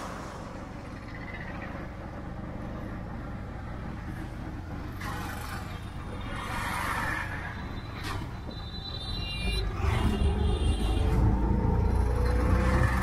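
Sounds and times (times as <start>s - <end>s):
passing traffic noise: 0.0s - 13.0s
small engine low rumble: 0.0s - 13.0s.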